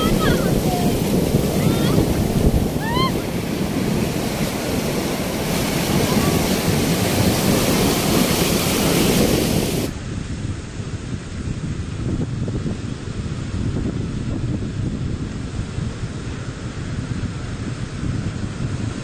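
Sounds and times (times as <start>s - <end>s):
surf breaking in shallows: 0.0s - 14.2s
wind buffeting microphone: 0.0s - 19.0s
high cry from person: 2.8s - 3.3s.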